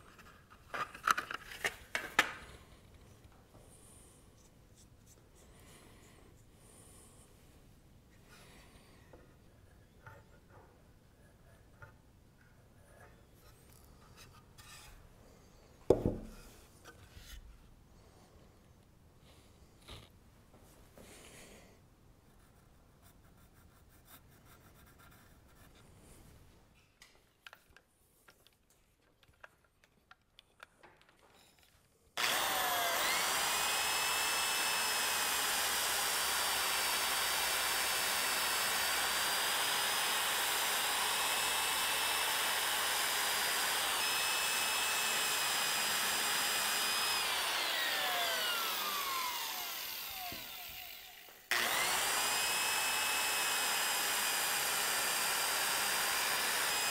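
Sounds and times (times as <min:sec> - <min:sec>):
power tool grinding wood: 0:32.2 - 0:56.9.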